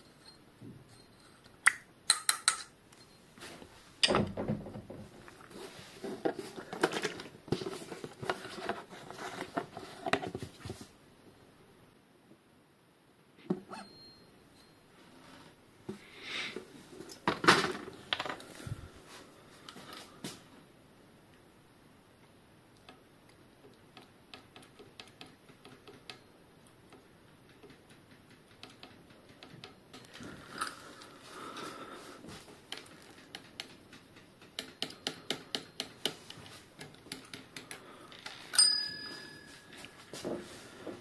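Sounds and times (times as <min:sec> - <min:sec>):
metallic clink: 0:38.5 - 0:39.9.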